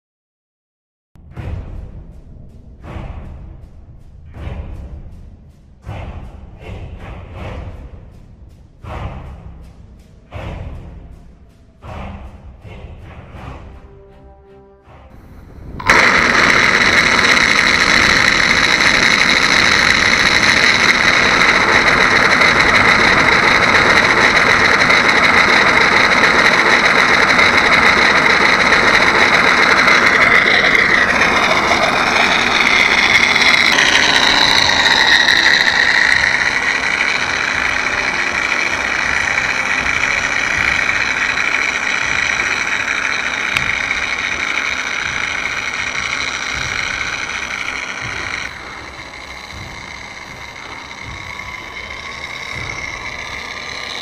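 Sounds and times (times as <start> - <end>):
model airplane motor whine: 15.1 - 54.0.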